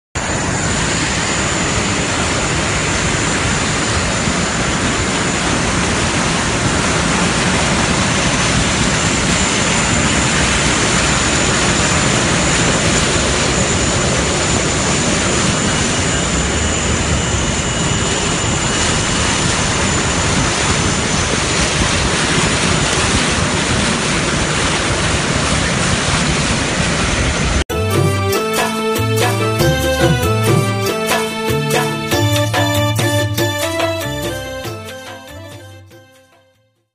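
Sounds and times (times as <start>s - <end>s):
rush of floodwater: 18.4s - 27.4s.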